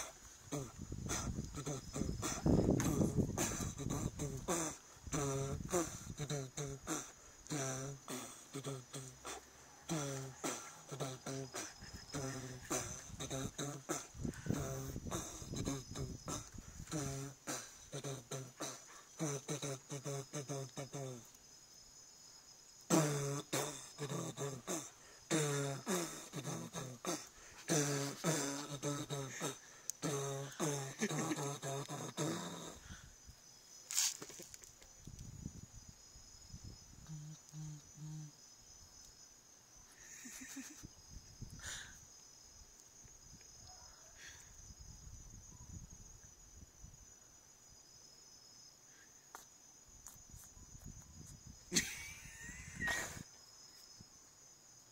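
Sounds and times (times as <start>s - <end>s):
person singing wordless syllables: 0.0s - 21.4s, 22.9s - 32.9s, 37.0s - 38.4s
crickets chirring: 0.0s - 54.9s.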